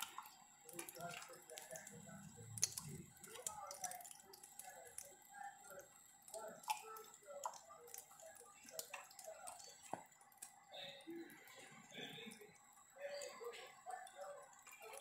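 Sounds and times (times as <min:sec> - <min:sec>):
water drips: 0:00.0 - 0:15.0.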